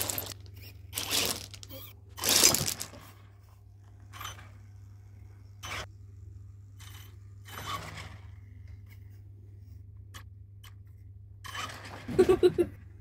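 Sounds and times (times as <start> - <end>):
rc truck electric drive whirring: 3.8 - 8.4, 11.4 - 12.2.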